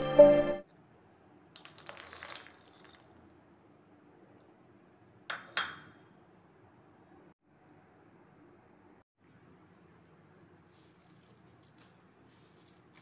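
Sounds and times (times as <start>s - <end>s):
intro music: 0.0s - 0.6s.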